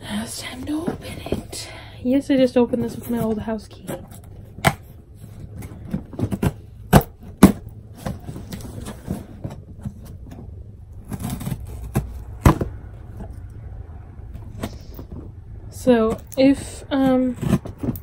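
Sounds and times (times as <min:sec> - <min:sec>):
cardboard flaps rustling: 0:02.5 - 0:12.9.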